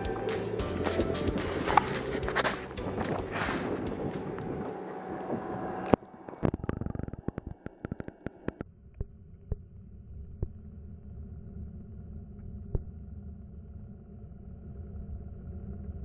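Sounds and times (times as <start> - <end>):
water and wind rushing: 0.0 - 6.6
bilge pump humming underwater: 0.0 - 16.0
underwater bubbly clicks: 5.8 - 10.6.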